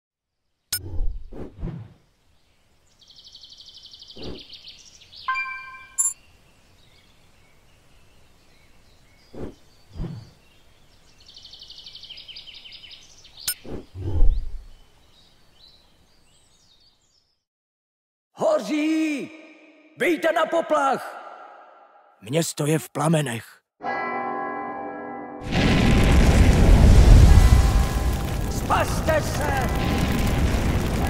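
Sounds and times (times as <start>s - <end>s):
short bright chime: 5.3s - 6.1s.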